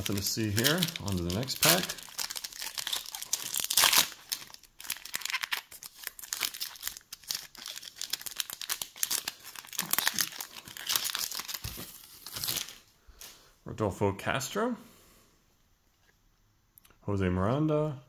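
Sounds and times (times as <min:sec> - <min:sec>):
foil wrappers crinkling and tearing: 0:00.0 - 0:12.8.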